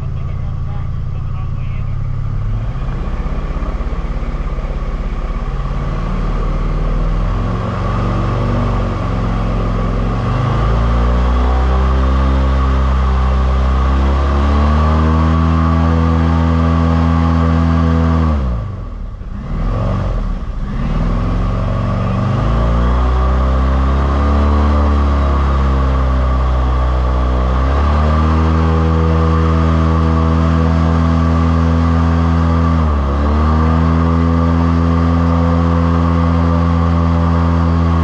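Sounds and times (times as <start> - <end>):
airboat engine and propeller: 0.0 - 38.0.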